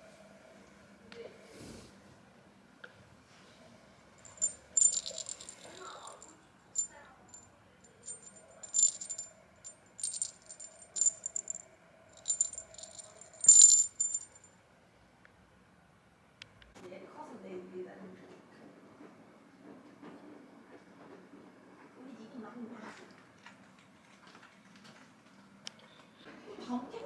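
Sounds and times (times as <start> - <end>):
bell jingling inside toy ball: 4.2 - 11.6, 12.2 - 14.5.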